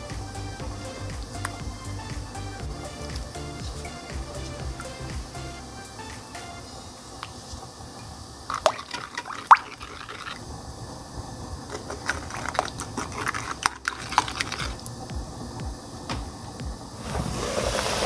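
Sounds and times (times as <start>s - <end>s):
liquid swishing and splashing: 8.5s - 10.5s, 11.7s - 14.9s.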